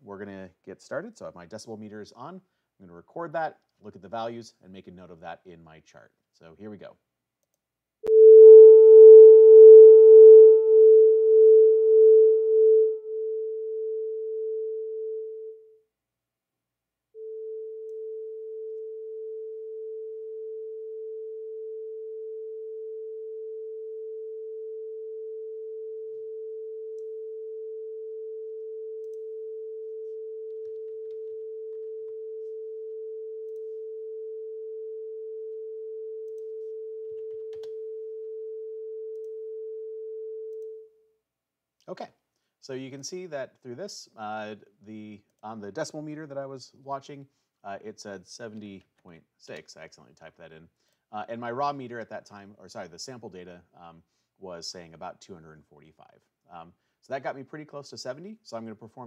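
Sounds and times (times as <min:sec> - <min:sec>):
sine test tone: 0:08.1 - 0:15.7, 0:17.2 - 0:40.9.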